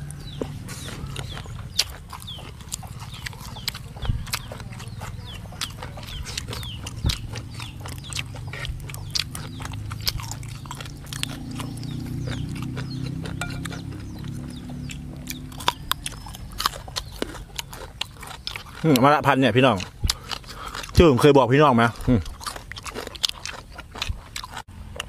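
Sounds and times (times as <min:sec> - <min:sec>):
chewing and lip-smacking: 0:00.0 - 0:25.0
low steady hum: 0:13.2 - 0:18.7.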